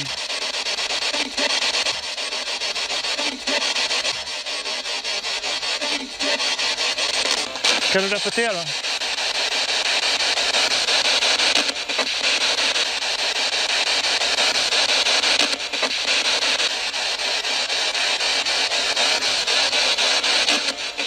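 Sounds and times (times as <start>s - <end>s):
radio static hiss: 0.0s - 21.0s
rapid radio ticks: 0.0s - 21.0s
voice speaking through radio: 7.4s - 8.8s.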